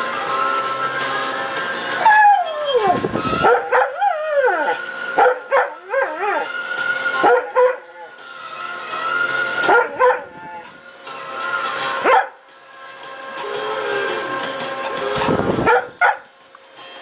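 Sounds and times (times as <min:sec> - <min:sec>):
song playing: 0:00.0 - 0:15.8
dog howling: 0:02.0 - 0:08.2
dog yipping: 0:02.6 - 0:04.1, 0:05.2 - 0:06.4, 0:07.2 - 0:07.9, 0:09.7 - 0:10.3, 0:12.0 - 0:12.4, 0:14.8 - 0:16.3.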